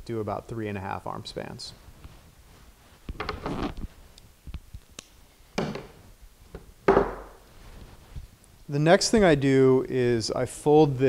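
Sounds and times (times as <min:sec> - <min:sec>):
short rustles: 0:07.4 - 0:08.5.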